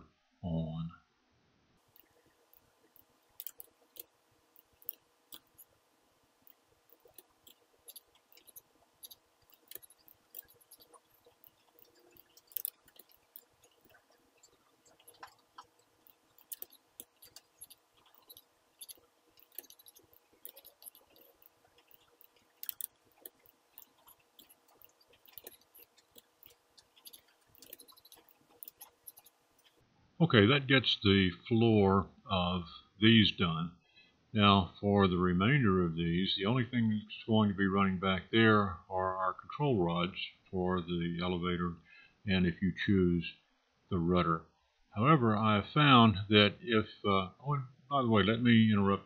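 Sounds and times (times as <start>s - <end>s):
faint steady hum: 0.0s - 49.0s
computer mouse clicking: 1.9s - 5.8s, 6.4s - 29.8s.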